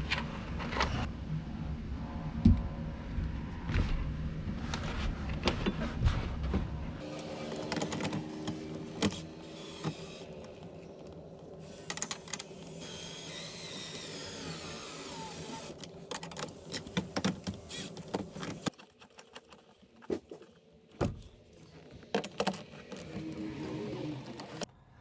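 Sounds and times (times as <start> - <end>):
cordless drill driving screws: 12.8 - 15.8.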